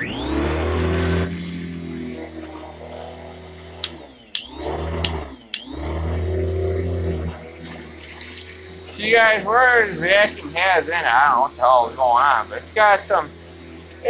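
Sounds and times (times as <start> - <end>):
vacuum cleaner motor humming: 0.0 - 14.0
sharp clicks: 3.8 - 5.7.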